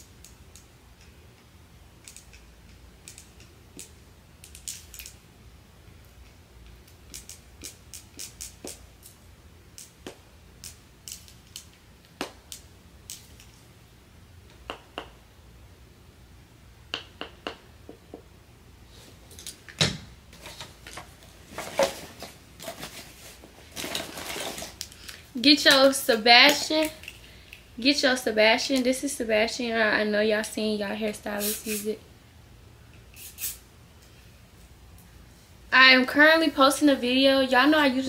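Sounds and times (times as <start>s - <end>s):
rustling: 20.3s - 25.3s.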